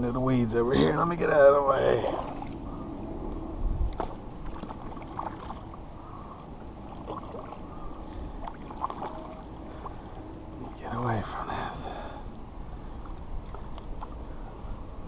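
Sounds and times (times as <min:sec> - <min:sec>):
paddle splashing in water: 0:03.9 - 0:05.8, 0:06.9 - 0:07.6, 0:08.4 - 0:10.0.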